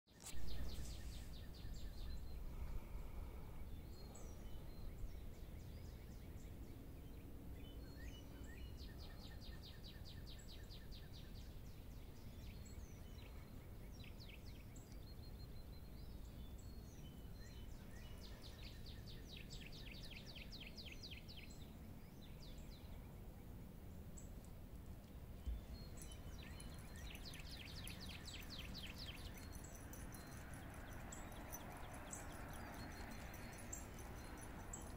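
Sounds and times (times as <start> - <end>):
birds chirping: 0.1 - 34.9
bird rapid trill: 25.8 - 34.9.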